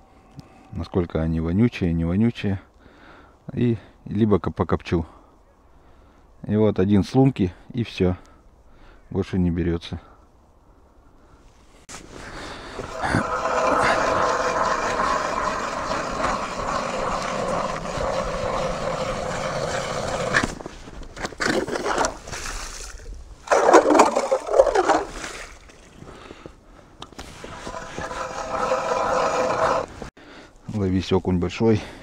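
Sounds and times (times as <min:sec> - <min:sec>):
ice auger grinding through ice: 0:12.2 - 0:22.4, 0:23.5 - 0:25.3, 0:27.2 - 0:30.1.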